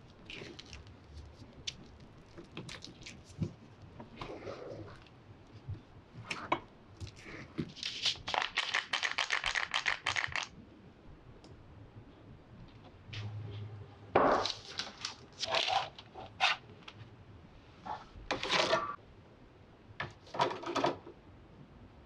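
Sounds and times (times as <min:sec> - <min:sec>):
baking tray clatter and scraping: 0:17.9 - 0:19.0.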